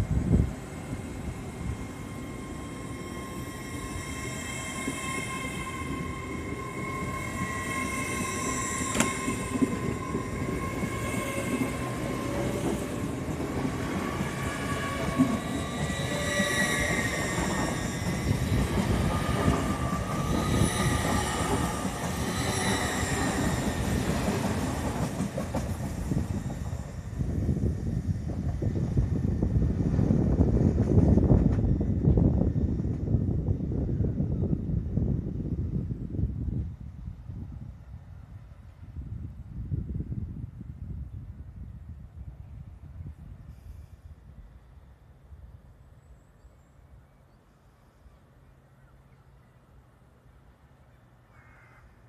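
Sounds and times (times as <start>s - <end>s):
train wheels rumbling on rails: 0.0s - 40.3s.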